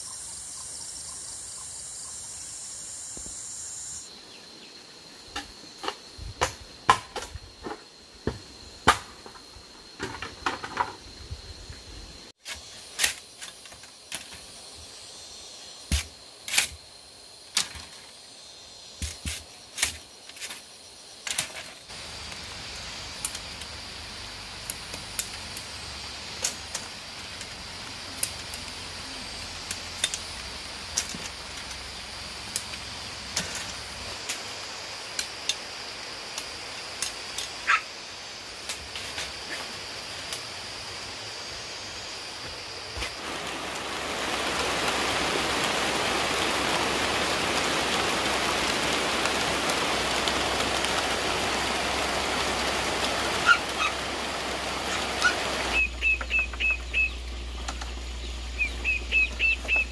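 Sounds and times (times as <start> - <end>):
high-pitched insect drone: 0.0 - 6.4, 7.0 - 19.6, 20.4 - 48.7, 49.6 - 59.9
loud high hiss: 21.9 - 59.9.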